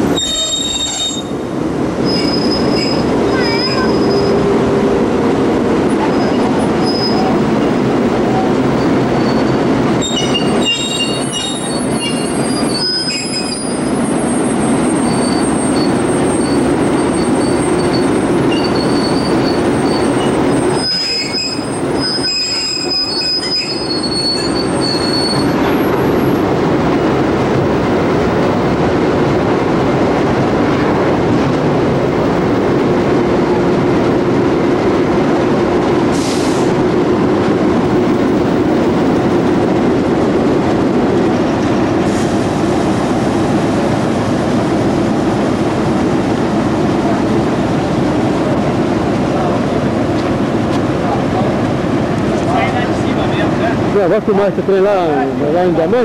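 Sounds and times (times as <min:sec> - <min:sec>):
freight train rumbling on rails: 0:00.0 - 0:56.0
train wheels squealing: 0:00.1 - 0:01.4, 0:02.0 - 0:04.4, 0:06.0 - 0:07.5, 0:08.3 - 0:26.4.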